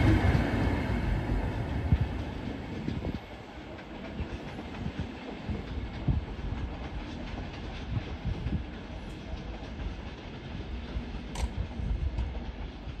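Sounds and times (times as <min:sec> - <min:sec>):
train wheels rumbling on rail: 0:00.0 - 0:13.0
sharp click: 0:11.3 - 0:11.6.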